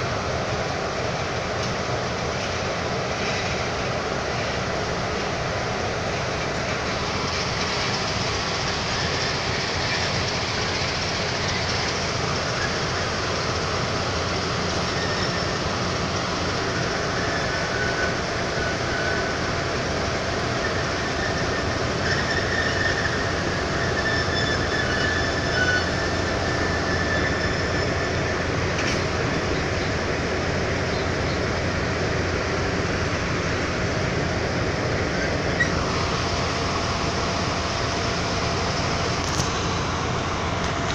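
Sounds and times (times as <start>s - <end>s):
diesel locomotive engines droning: 0.0s - 40.9s
rumble of train wheels: 0.0s - 40.9s
high wheel squeals on rails: 1.6s - 40.9s.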